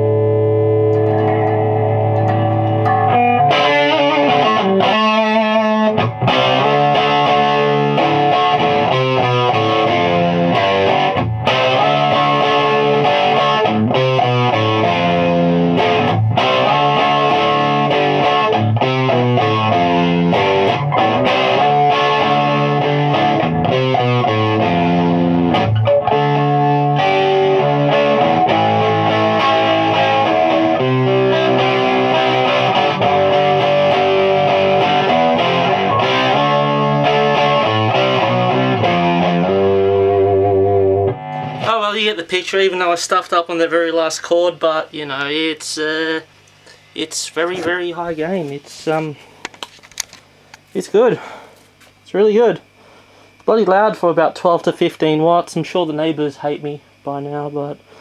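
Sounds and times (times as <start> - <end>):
overdriven electric guitar chords: 0.0 - 43.0.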